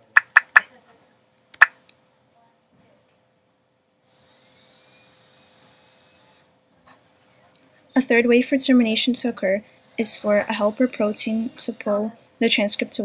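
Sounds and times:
marker squeaking on whiteboard: 0.0s - 0.6s
sharp click: 0.0s - 0.6s, 1.5s - 1.7s.

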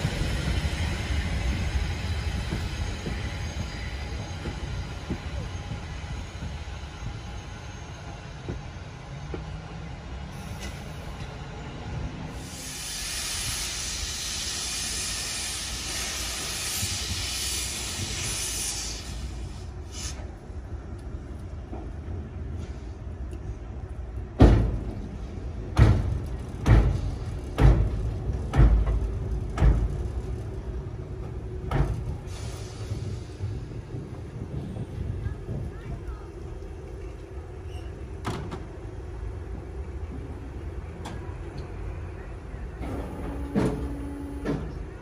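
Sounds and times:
steam hiss: 12.3s - 20.4s, 32.1s - 34.0s
steam locomotive exhaust chuffs: 12.3s - 20.4s, 31.2s - 35.6s.

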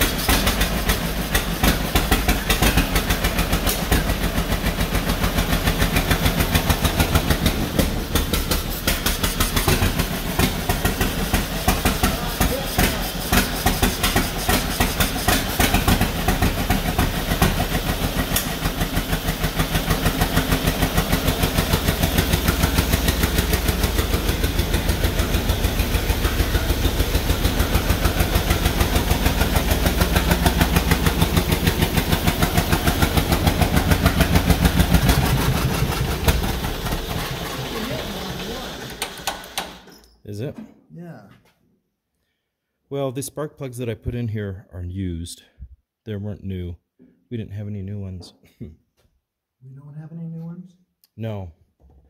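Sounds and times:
tractor engine running roughly: 0.0s - 39.9s.

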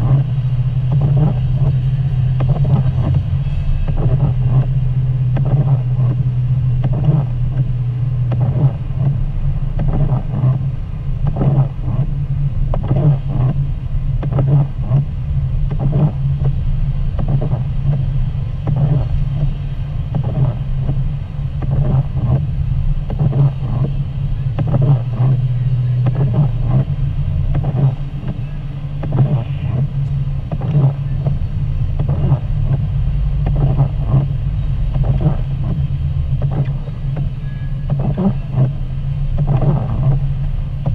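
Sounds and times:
car engine and road drone: 0.0s - 40.9s
short knocks and swishes: 9.8s - 12.1s, 23.0s - 40.9s.

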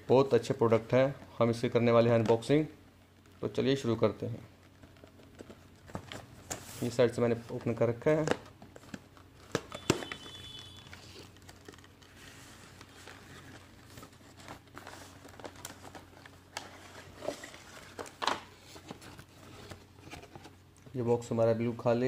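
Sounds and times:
packaging rustling and crinkling: 4.5s - 20.7s.

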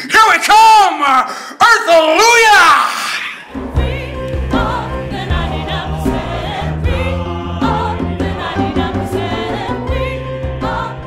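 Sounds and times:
choir singing gospel music: 3.4s - 11.0s
low musical accompaniment: 3.5s - 11.0s.

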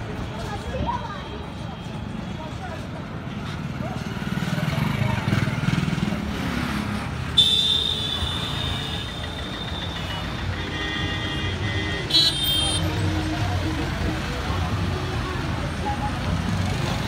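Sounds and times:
road traffic engines: 0.0s - 17.0s
vehicle horn: 7.4s - 12.9s.

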